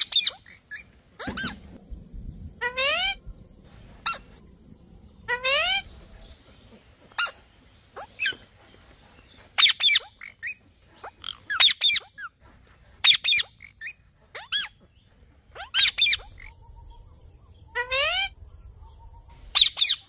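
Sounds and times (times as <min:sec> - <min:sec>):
parakeet high-pitched calls: 0:00.0 - 0:01.6, 0:02.6 - 0:03.2, 0:05.3 - 0:05.9, 0:07.1 - 0:07.4, 0:09.6 - 0:12.3, 0:13.0 - 0:14.8, 0:15.6 - 0:16.9, 0:17.7 - 0:18.4, 0:19.5 - 0:20.0.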